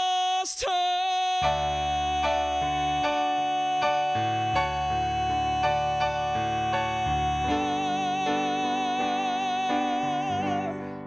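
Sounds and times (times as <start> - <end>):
man singing a long high note: 0.0 - 11.0
piano keyboard chords: 1.4 - 11.0.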